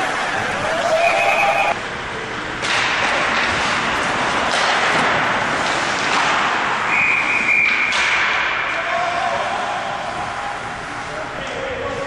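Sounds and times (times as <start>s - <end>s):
crowd noise: 0.0s - 2.3s
referee's whistle: 0.9s - 1.8s.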